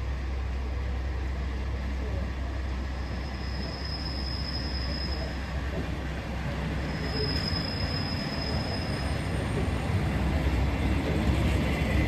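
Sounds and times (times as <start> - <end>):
low train rumble: 0.0 - 12.0
train wheels squealing: 3.0 - 9.9.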